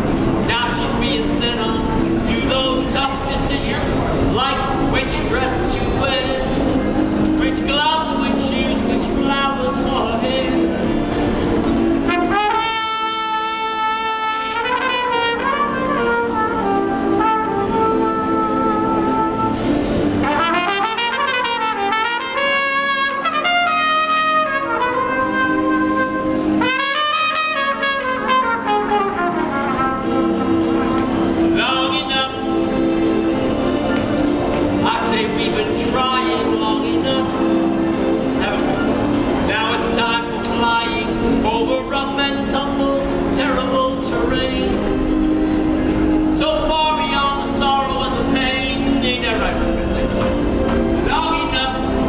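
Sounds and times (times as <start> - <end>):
trumpet melody: 0.0 - 52.0
man singing: 0.4 - 10.8, 31.4 - 32.9, 34.8 - 45.3, 46.2 - 52.0.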